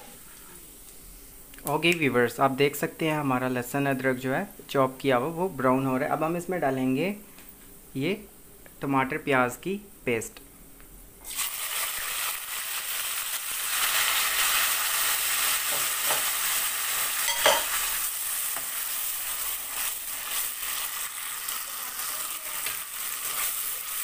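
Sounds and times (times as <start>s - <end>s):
paste sizzling in hot oil: 11.2s - 24.0s.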